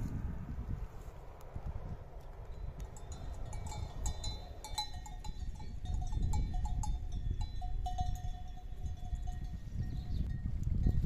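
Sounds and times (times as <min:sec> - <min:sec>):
livestock bell clinking: 0:02.6 - 0:11.0.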